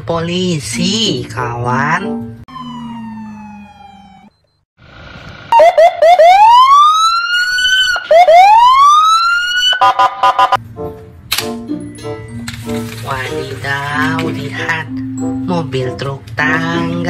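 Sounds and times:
music: 0.8 - 2.4, 10.6 - 17.0
police siren yelps and whoops: 2.5 - 4.4, 5.5 - 10.6.

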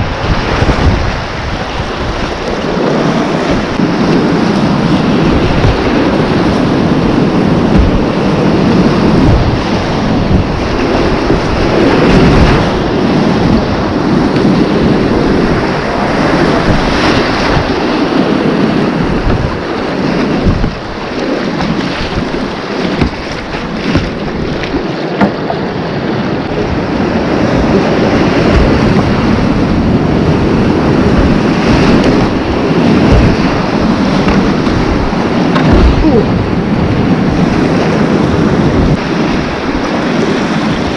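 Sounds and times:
paddle strokes splashing: 0.0 - 40.9
whitewater rapids rushing: 0.0 - 40.9
wind buffeting microphone: 0.0 - 40.9.

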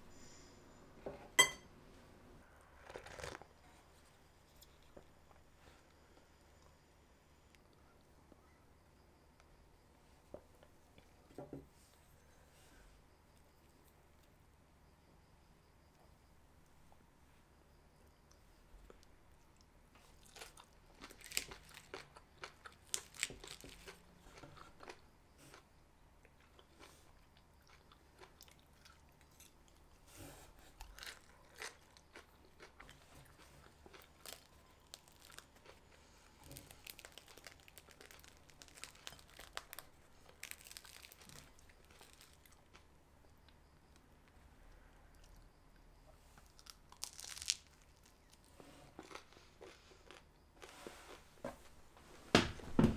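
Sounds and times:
salad crunched and chewed: 30.8 - 42.9, 46.4 - 48.4, 49.0 - 50.3.

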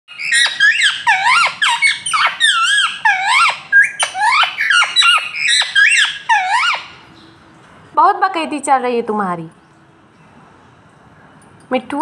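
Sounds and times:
parakeet squawking: 0.1 - 7.3.

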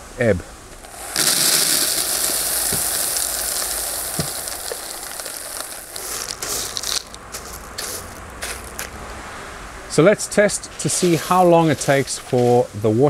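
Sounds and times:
clay pebbles rattling into plastic tray: 0.8 - 8.9.

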